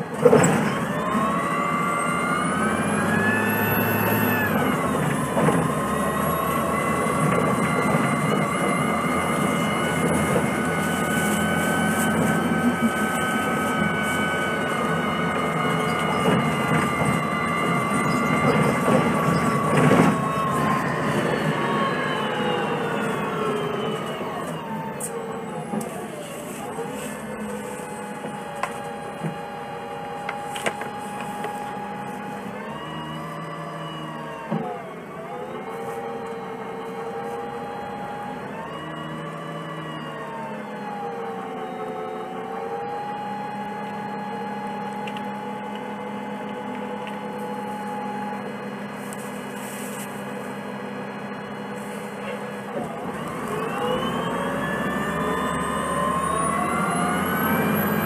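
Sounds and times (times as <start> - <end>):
bus engine and road noise: 0.0 - 58.0.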